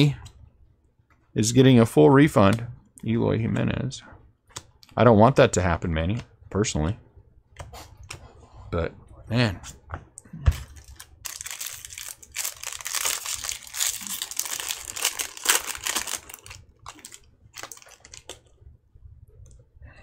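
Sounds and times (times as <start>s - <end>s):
foil wrapper crinkling: 10.6s - 18.5s.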